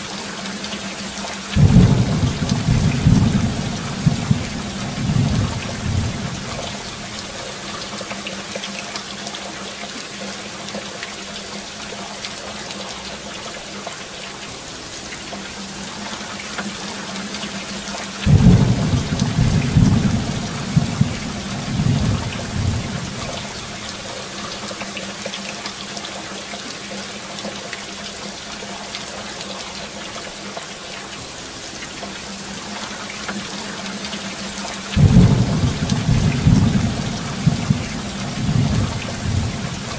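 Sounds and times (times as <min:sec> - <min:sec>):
heavy rain: 0:00.0 - 0:39.9
thunder clap rumbling: 0:01.6 - 0:07.3, 0:18.2 - 0:24.1, 0:35.0 - 0:39.9.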